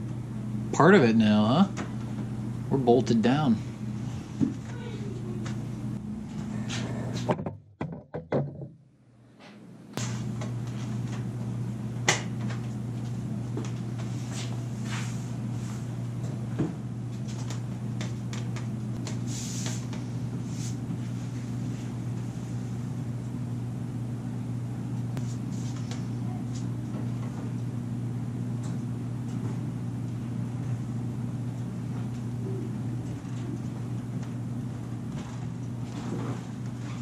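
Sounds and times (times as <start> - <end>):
low room hum: 0.0 - 7.5, 8.6 - 37.0.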